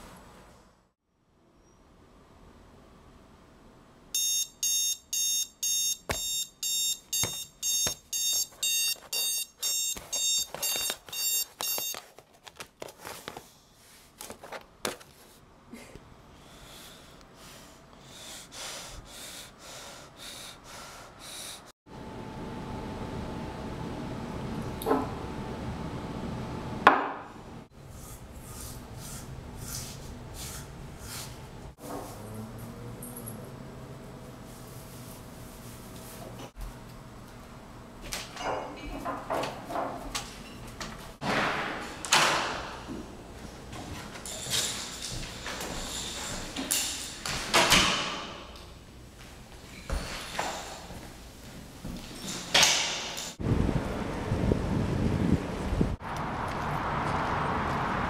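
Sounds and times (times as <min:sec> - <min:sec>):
alarm clock beeping: 0:04.2 - 0:12.0.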